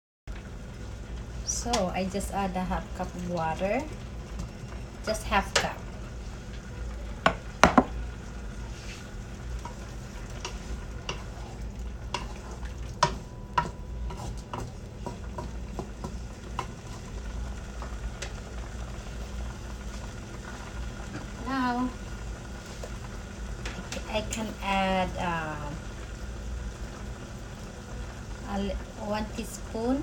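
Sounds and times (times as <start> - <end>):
food sizzling: 0.3 - 30.0
sharp knocks: 7.3 - 7.9
wooden spoon scraping a pan: 8.6 - 17.2.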